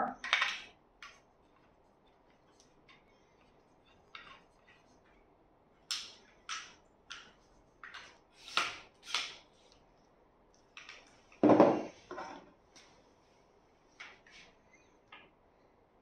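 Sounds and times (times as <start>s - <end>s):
tripod thud on wooden floor: 11.4s - 11.9s.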